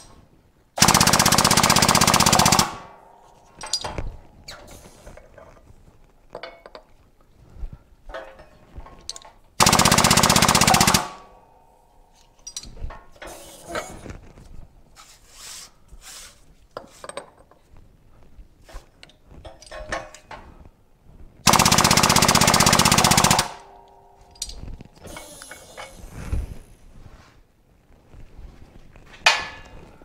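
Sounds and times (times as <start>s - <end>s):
metal parts clinking: 3.2s - 5.7s, 6.3s - 7.0s, 8.1s - 9.6s, 12.1s - 14.1s, 19.0s - 20.4s, 23.1s - 26.1s
pneumatic tool hammering: 13.2s - 14.0s, 25.0s - 26.1s.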